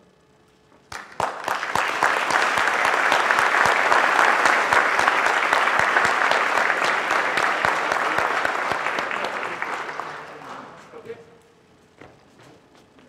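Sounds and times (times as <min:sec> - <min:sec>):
audience applause: 0:00.9 - 0:10.9.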